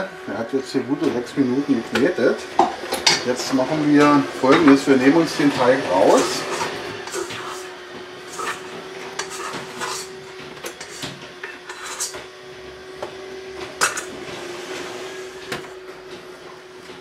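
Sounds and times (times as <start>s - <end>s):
scraper scraping metal bowl: 2.6s - 12.3s, 13.7s - 15.4s.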